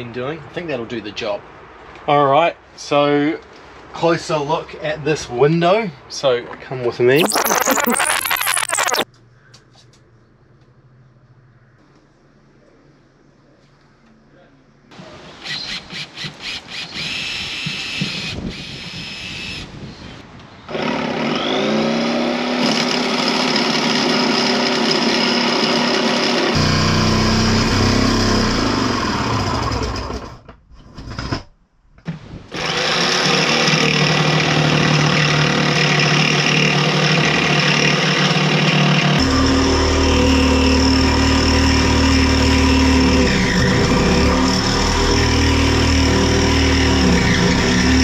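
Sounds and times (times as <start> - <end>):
power drill running: 20.7 - 30.3, 32.5 - 48.0.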